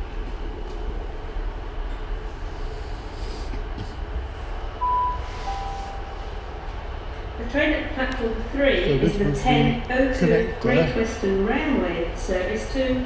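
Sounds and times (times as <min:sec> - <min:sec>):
train rumbling: 0:00.0 - 0:13.0
two-tone announcement chime: 0:04.8 - 0:06.5.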